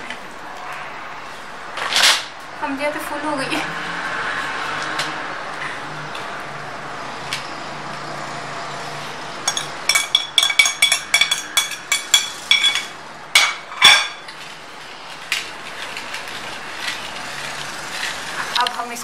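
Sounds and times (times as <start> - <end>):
fruit clinking against clay pot: 9.5 - 14.3.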